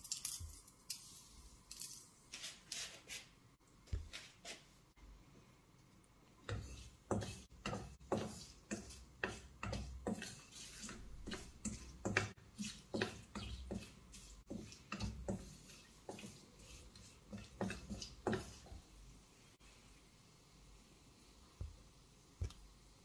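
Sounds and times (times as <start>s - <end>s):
wooden spatula scraping metal pan: 6.5s - 18.8s.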